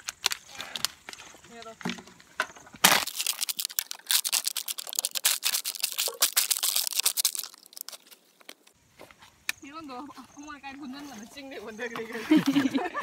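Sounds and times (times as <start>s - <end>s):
plastic bags crinkling: 2.8s - 8.7s.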